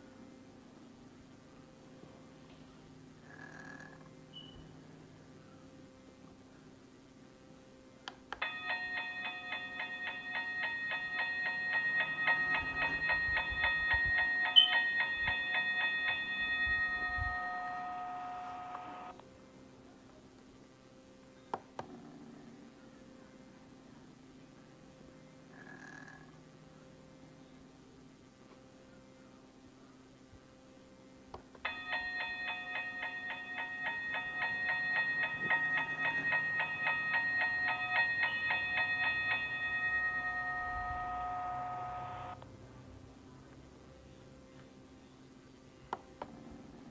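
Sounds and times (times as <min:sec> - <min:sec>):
toy crossing bell ringing fast: 0:08.4 - 0:19.1, 0:31.6 - 0:42.4
toy crossing gate click: 0:08.4 - 0:19.1, 0:31.6 - 0:42.4.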